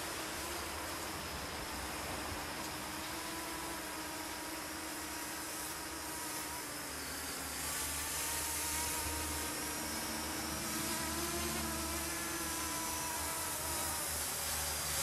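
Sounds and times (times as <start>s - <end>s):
drone propellers buzzing: 0.0s - 15.0s.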